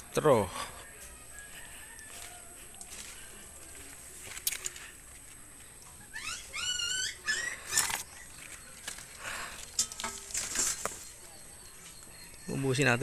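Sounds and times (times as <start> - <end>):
animal yelping: 6.0 - 8.2.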